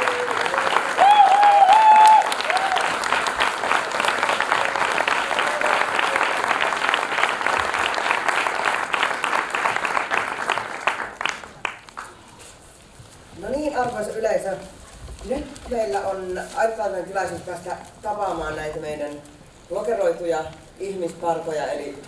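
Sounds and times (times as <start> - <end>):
crowd cheering: 0.0 - 11.8
audience applauding: 0.0 - 12.5.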